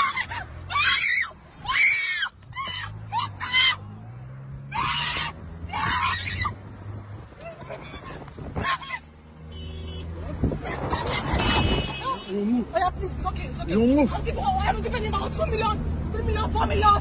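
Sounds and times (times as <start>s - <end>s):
car engine hum: 0.0s - 17.0s
woman screaming: 4.7s - 6.6s.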